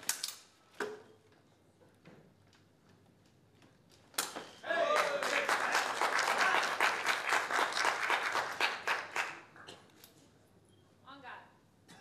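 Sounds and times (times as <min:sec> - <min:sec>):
audience applauding: 0:04.7 - 0:09.6.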